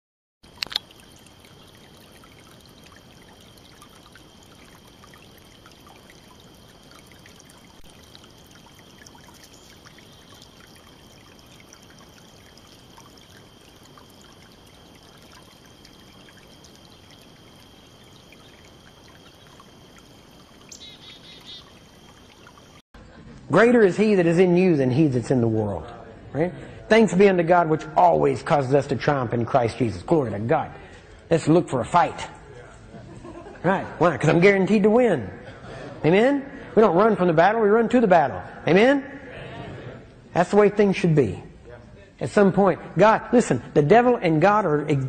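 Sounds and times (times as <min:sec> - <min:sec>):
high chirping: 0:20.7 - 0:21.8.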